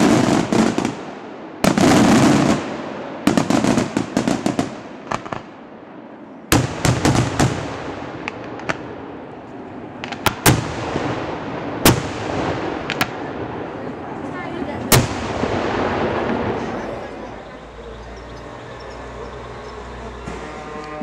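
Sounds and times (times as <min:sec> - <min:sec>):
firecracker bangs: 0:00.0 - 0:05.6, 0:06.5 - 0:09.1, 0:10.0 - 0:13.7, 0:14.9 - 0:17.6.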